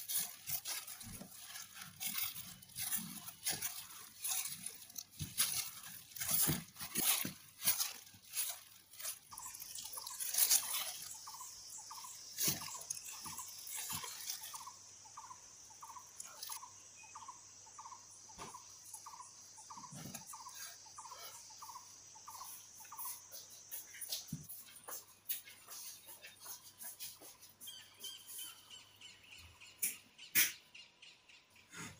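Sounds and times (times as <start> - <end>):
bamboo mat rustling and clicking: 0.0 - 14.8
plastic gloves crinkling: 0.0 - 15.0.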